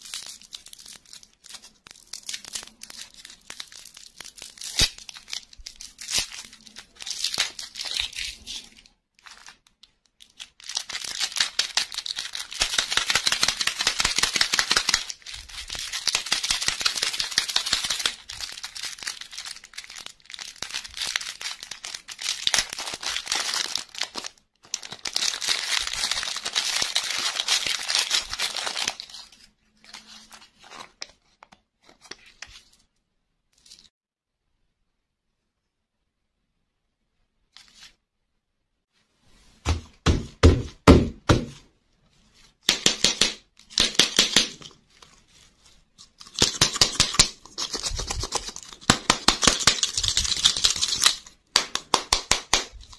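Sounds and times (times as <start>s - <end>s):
plastic wrappers crinkling: 0.0s - 32.8s, 43.6s - 52.0s.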